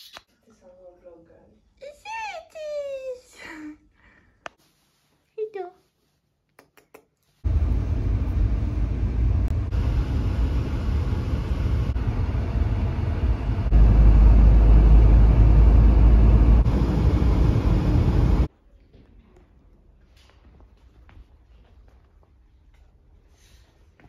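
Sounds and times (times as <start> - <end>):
road noise inside moving car: 7.5 - 18.5.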